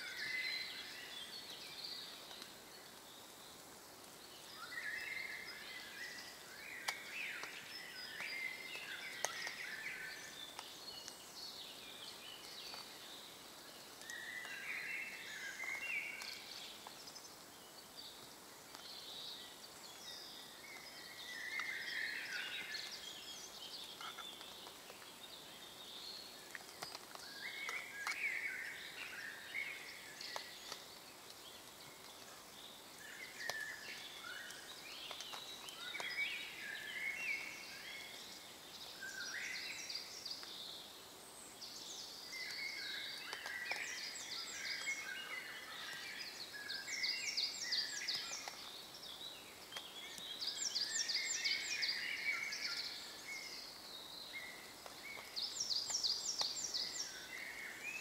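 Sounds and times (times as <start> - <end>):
songbirds singing: 0.0 - 58.0.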